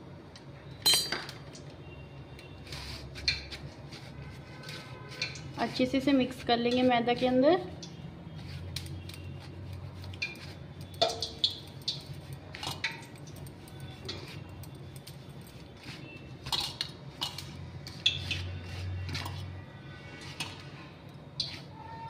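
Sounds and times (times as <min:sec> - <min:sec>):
bangles clinking on steel bowl: 0:00.8 - 0:01.4, 0:10.0 - 0:19.4.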